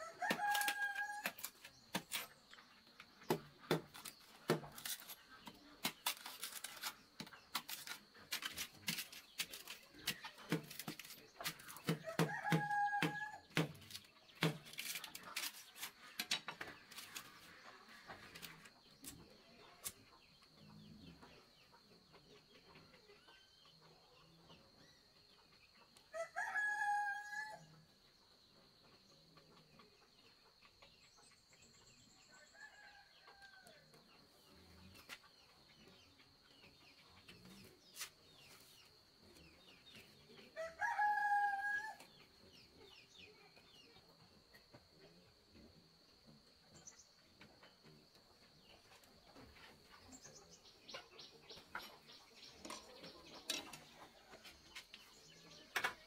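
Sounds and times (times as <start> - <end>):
rooster crowing: 0.0 - 1.2, 12.0 - 13.4, 26.1 - 27.6, 40.6 - 42.0
knife splitting bamboo: 0.2 - 2.4, 3.3 - 17.3.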